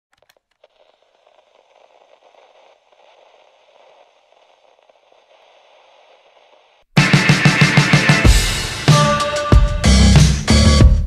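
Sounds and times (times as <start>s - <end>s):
small clicks: 0.1s - 6.2s
crackling static hiss: 0.1s - 8.8s.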